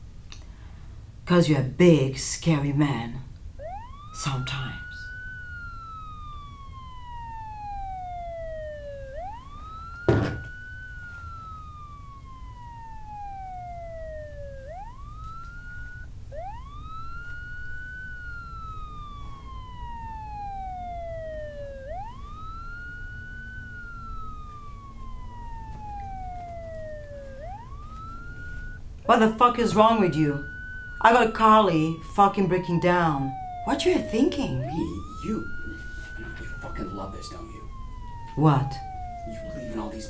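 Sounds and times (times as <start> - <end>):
wailing siren: 1.4 - 40.0
sharp knock: 10.1 - 10.5.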